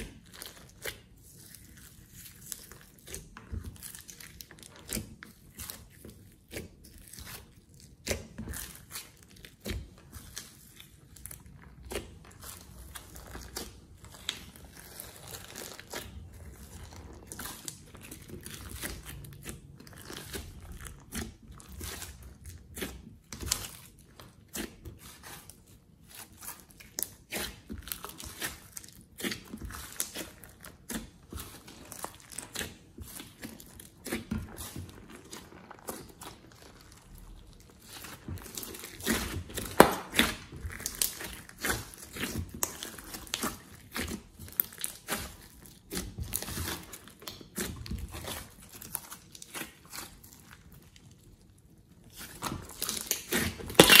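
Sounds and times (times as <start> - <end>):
slime clicking and popping: 52.8 - 54.0.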